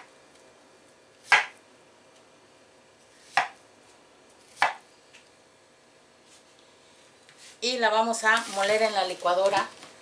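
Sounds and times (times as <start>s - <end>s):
knife chopping on wooden board: 1.3s - 1.6s, 3.2s - 3.6s, 4.5s - 4.8s.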